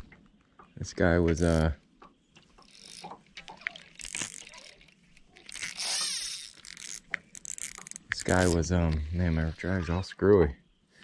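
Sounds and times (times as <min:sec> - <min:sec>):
fishing reel drag clicking and buzzing: 0:02.6 - 0:09.7.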